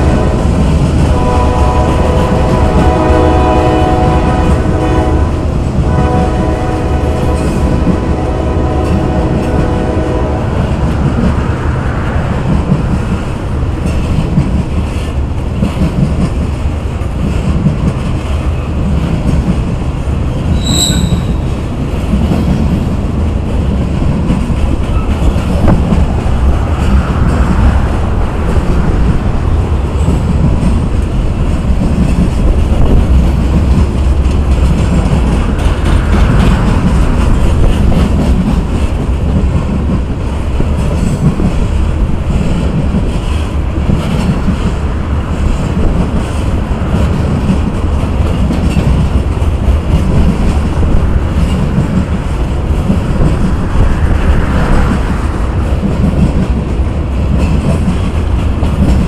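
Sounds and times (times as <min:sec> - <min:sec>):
locomotive horn blasts: 0:00.0 - 0:10.7, 0:20.6 - 0:21.5
freight train rumbling and clattering: 0:00.0 - 0:59.0
short high squeak: 0:20.5 - 0:21.4.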